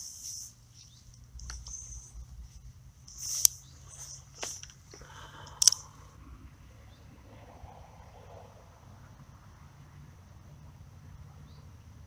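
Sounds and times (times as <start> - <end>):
soft rustles: 0.0 - 5.5
fishing reel clicks: 3.1 - 5.9.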